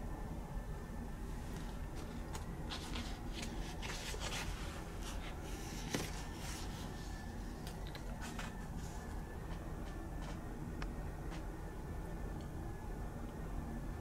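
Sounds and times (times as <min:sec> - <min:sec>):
low steady hum: 0:00.0 - 0:14.0
magazine pages rustling: 0:01.5 - 0:10.4.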